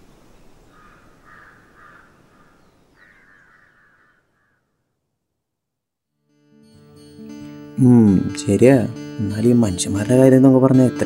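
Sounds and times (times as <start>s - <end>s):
faint outdoor background noise: 0.0s - 6.0s
bird giving harsh calls: 0.7s - 4.8s.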